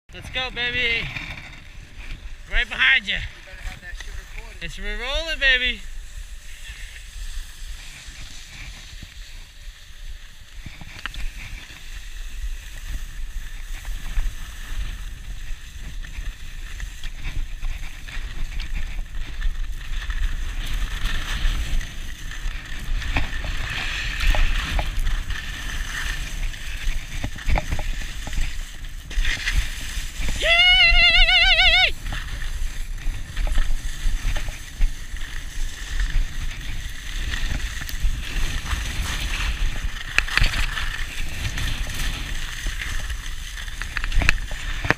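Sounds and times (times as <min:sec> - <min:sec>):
skis scraping snow: 0:00.1 - 0:44.9
wind rumble on microphone: 0:00.1 - 0:44.9
person whooping: 0:30.3 - 0:32.0.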